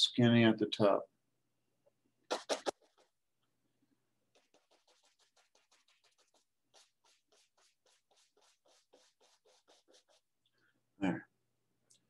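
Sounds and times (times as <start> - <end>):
paintbrush dabbing canvas: 2.3 - 3.2, 4.2 - 10.4.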